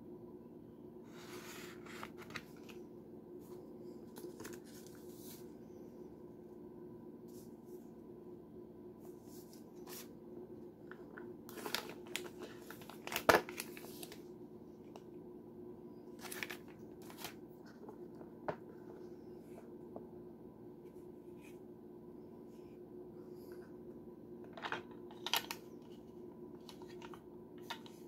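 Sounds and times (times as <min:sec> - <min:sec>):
steady low hum: 0:00.0 - 0:28.0
paper and plastic rustling: 0:03.4 - 0:05.5, 0:10.9 - 0:14.2, 0:16.2 - 0:18.0.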